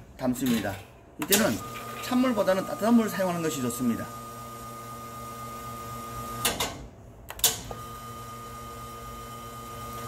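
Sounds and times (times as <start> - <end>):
machine hum with high tone: 1.2 - 6.6, 7.4 - 10.0.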